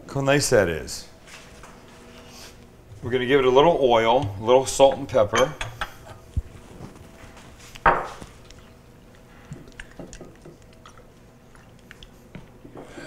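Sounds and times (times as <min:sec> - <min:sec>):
soft handling sounds: 0:06.2 - 0:08.7
knock on wooden countertop: 0:07.9 - 0:08.2.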